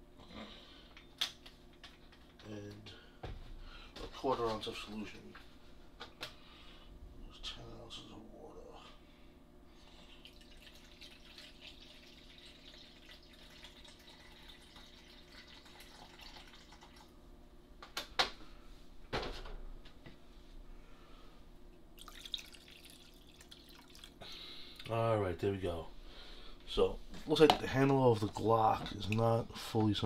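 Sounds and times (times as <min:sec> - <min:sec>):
water pouring into tank: 0:10.2 - 0:17.1, 0:22.0 - 0:24.2.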